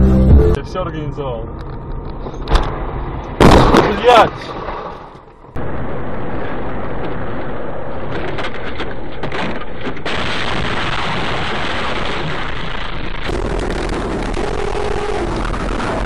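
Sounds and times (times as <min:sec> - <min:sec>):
road and engine noise: 0:00.0 - 0:11.0.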